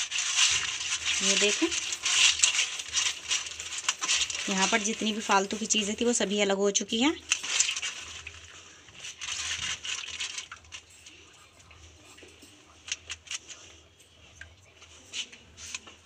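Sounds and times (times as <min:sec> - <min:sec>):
wet squelching pulp in strainer: 0:00.0 - 0:11.9.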